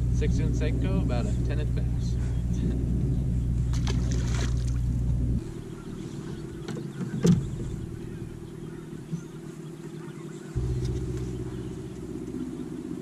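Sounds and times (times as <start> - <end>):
boat motor humming: 0.0 - 13.0
sharp knock on boat: 6.4 - 8.2.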